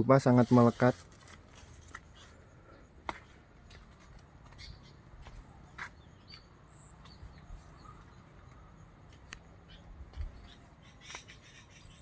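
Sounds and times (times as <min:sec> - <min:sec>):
faint bird chirps: 0:04.6 - 0:12.0.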